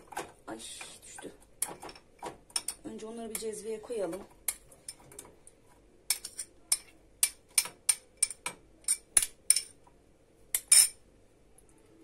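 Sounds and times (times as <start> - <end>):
metal clinking against a pot: 6.1 - 9.8, 10.6 - 11.0.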